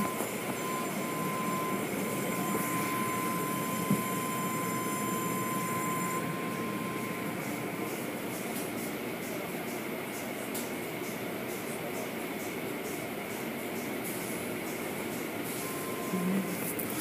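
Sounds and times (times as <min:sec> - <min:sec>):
steady high tone: 0:00.0 - 0:08.5, 0:15.6 - 0:16.8
car wash machinery rumbling: 0:00.0 - 0:09.6.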